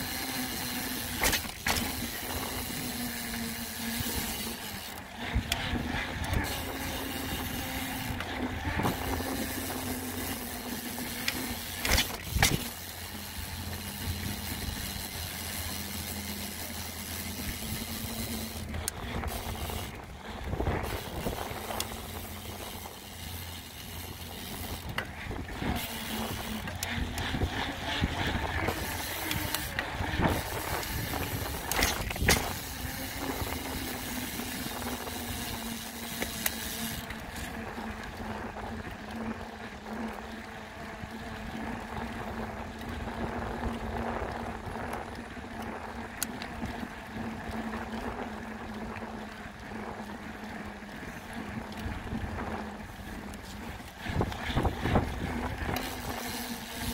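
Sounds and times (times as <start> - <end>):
tyre and wind noise: 0.0 - 12.8, 17.2 - 35.6, 51.4 - 56.9
low hum: 0.0 - 56.9.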